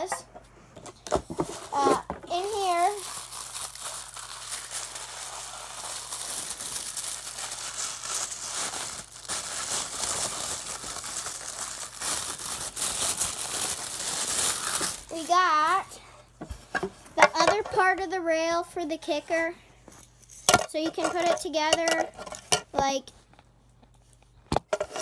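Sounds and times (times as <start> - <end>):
packaging crinkling and rustling: 1.0 - 15.9.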